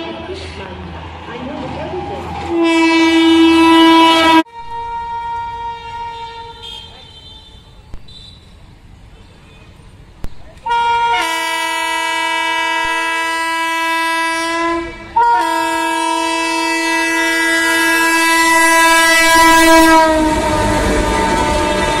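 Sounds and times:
train air horn blasts: 2.4s - 8.3s, 10.7s - 22.0s.

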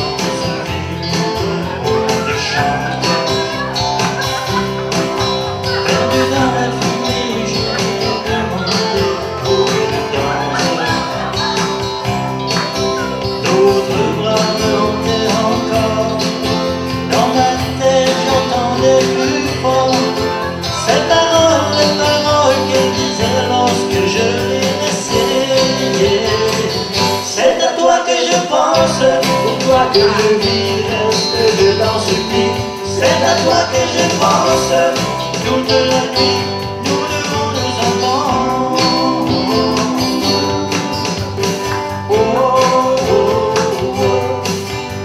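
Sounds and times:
live pop band playing: 0.0s - 45.0s
women singing: 5.6s - 11.6s, 37.1s - 41.1s, 42.1s - 44.7s.

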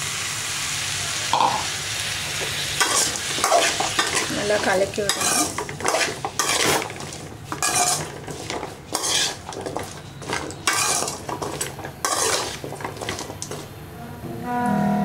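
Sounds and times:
metal spatula scraping a pan: 2.8s - 13.7s.

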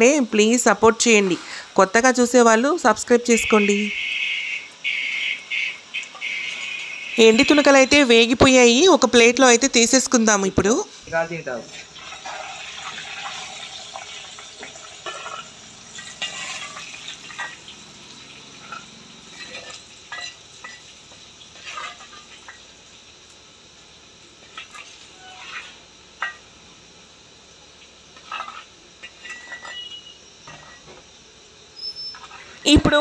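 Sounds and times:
hot oil sizzling: 0.0s - 33.0s
metal spoon clinking on pan: 18.7s - 20.9s, 28.2s - 30.8s.

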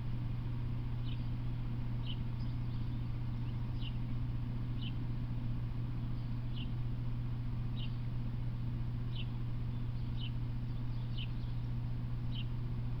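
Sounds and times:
steady low hum: 0.0s - 13.0s
small bird chirping: 1.0s - 5.1s, 5.9s - 6.8s, 7.7s - 8.2s, 9.1s - 12.6s.

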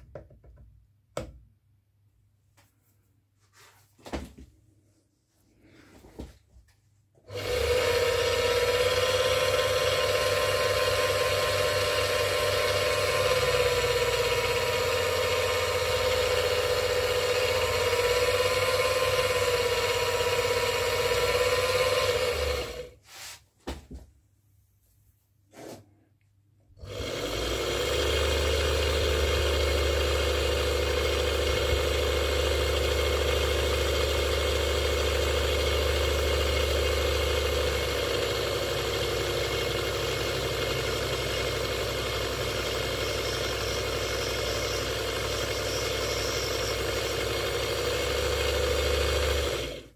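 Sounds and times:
lathe running with deep hum: 7.3s - 22.9s, 26.8s - 49.9s
lathe motor whining: 7.3s - 23.0s, 26.8s - 49.9s.

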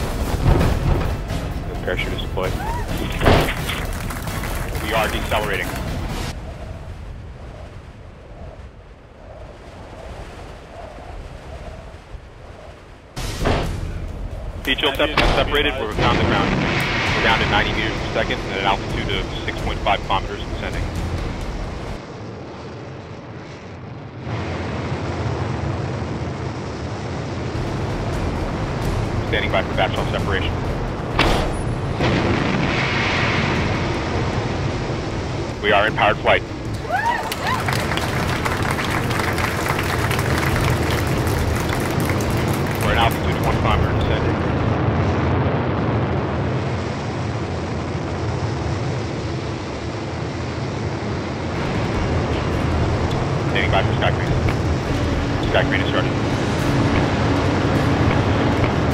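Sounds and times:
rocket thruster rumbling: 0.0s - 58.9s.

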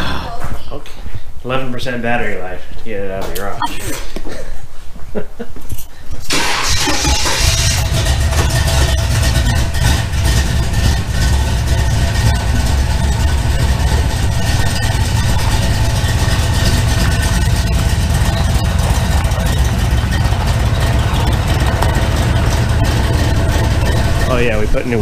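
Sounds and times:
car engine idling: 6.2s - 25.0s.

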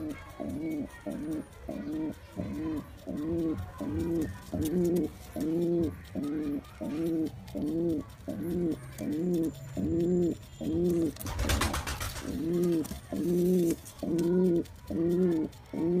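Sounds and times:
pigeon cooing: 0.0s - 16.0s
wing flapping: 10.9s - 14.3s.

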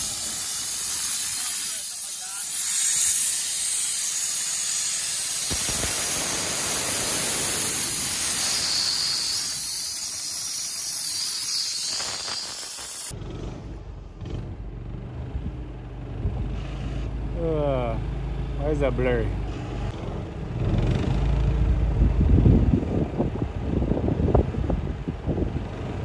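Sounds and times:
compressed air hissing from valve: 0.0s - 13.1s
low rumble: 13.1s - 17.4s, 18.0s - 26.0s.

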